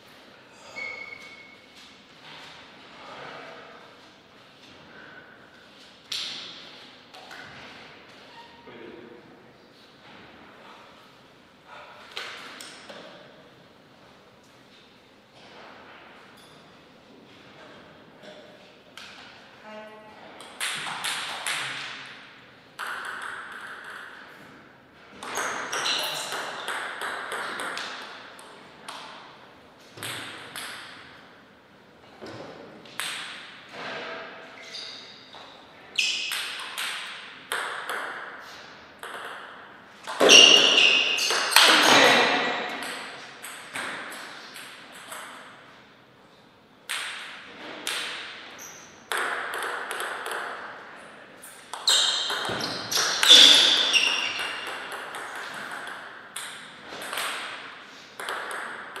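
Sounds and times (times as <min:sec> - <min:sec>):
ping pong ball clicking on paddles: 0:20.4 - 0:24.5, 0:25.2 - 0:29.3, 0:30.0 - 0:31.2, 0:32.9 - 0:33.6, 0:36.0 - 0:41.9, 0:42.6 - 0:45.6, 0:46.9 - 0:50.9, 0:51.6 - 0:59.0.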